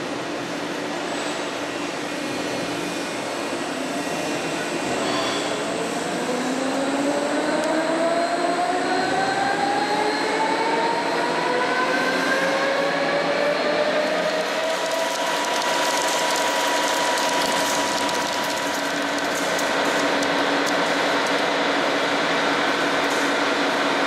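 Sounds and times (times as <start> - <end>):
machine noise: 13.9 - 24.0.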